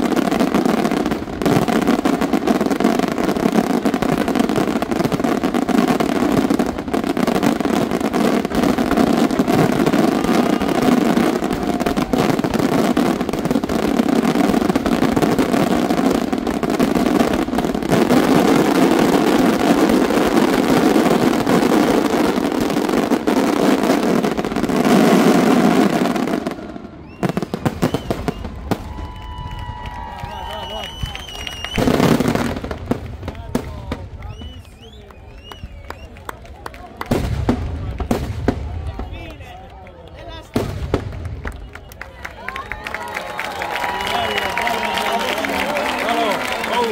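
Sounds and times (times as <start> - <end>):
fireworks exploding and crackling: 0.0 - 46.9
rising firework whistles: 5.8 - 16.2, 24.8 - 32.7, 34.2 - 36.2, 41.4 - 46.9
firework pops: 27.0 - 29.8, 30.4 - 36.4, 37.0 - 39.7, 40.4 - 42.0.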